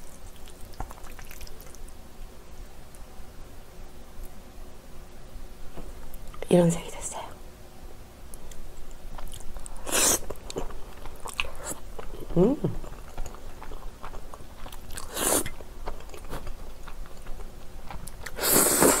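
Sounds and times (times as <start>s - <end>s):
wet chewing clicks: 0.2s - 1.9s, 9.2s - 18.4s
slurping noodles: 18.3s - 19.0s.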